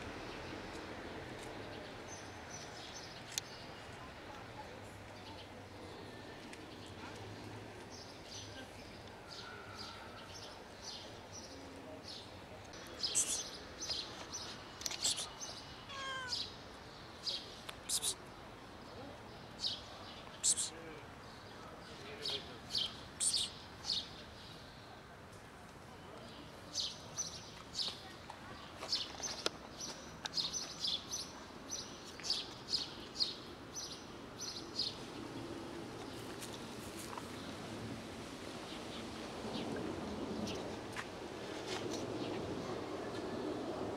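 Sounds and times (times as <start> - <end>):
small birds chirping: 10.3 - 24.6
cat meowing: 15.9 - 16.5.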